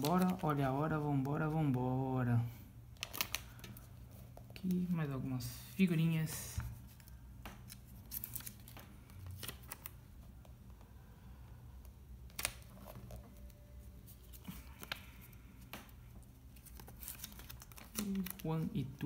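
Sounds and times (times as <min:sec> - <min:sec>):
paper rustling: 0:00.0 - 0:01.8, 0:16.4 - 0:18.8
steady low hum: 0:00.1 - 0:19.0.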